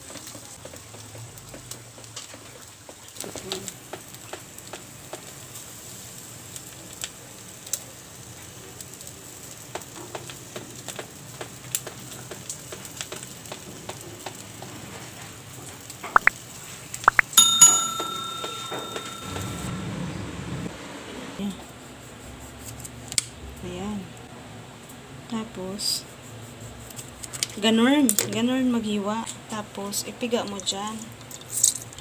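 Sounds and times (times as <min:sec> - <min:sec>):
chicken sizzling on a grill: 0:00.0 - 0:17.0, 0:20.8 - 0:32.0
ringing bell-like chime: 0:17.1 - 0:19.8.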